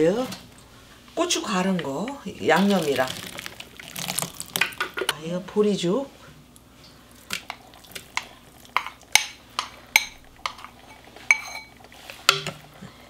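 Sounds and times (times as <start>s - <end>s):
spoon clinking on porcelain bowl: 11.3s - 11.7s.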